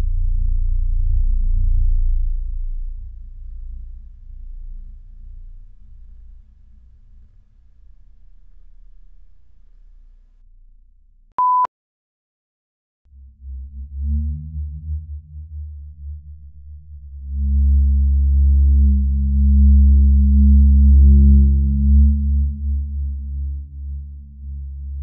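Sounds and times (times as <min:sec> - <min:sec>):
deep low droning rumble: 0:00.0 - 0:11.2.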